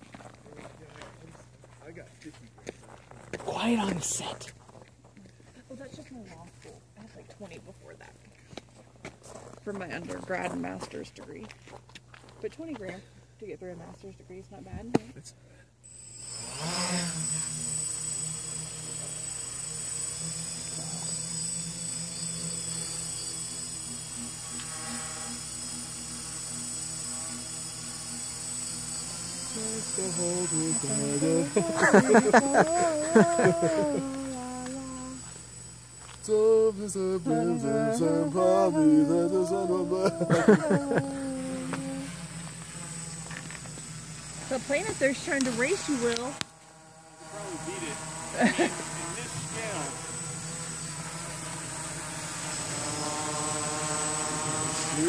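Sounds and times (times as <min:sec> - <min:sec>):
drone propellers buzzing: 0:03.3 - 0:04.5, 0:15.9 - 0:55.0.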